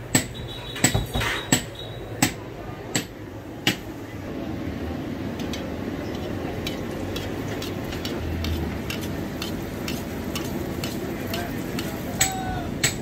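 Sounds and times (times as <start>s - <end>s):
oil sizzling and bubbling: 4.6s - 13.0s.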